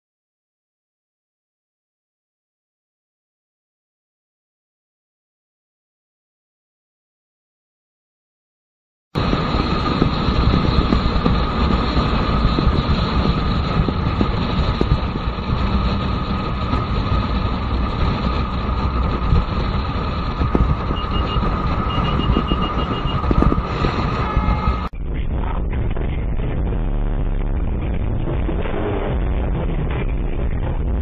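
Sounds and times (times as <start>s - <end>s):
motorcycle engine running: 9.2s - 31.0s
steady whine: 9.2s - 31.0s
wind rushing over microphone: 9.2s - 31.0s.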